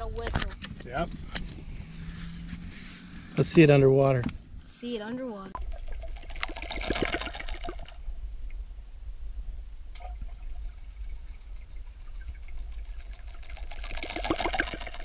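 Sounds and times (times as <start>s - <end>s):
low underwater rumble: 5.4s - 15.0s
lure clicking and churning water: 5.5s - 8.6s, 9.9s - 15.0s.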